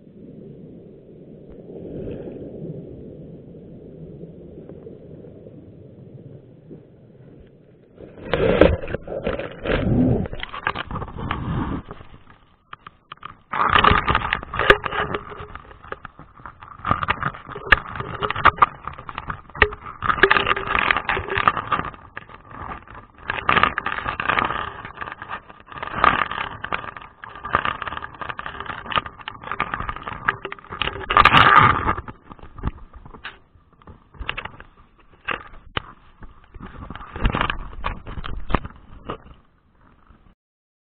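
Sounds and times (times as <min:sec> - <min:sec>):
underwater crackling and clicking: 0:01.5 - 0:40.4.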